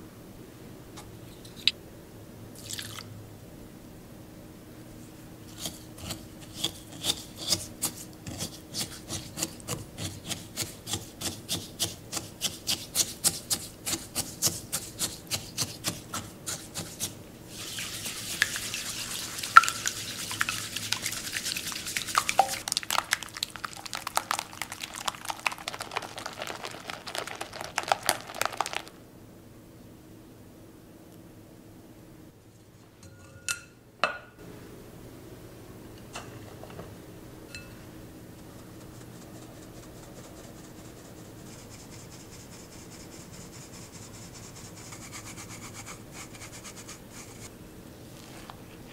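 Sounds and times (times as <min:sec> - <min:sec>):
whisk stirring in glass bowl: 0:10.2 - 0:29.0
fast frothy whisking: 0:16.5 - 0:29.0.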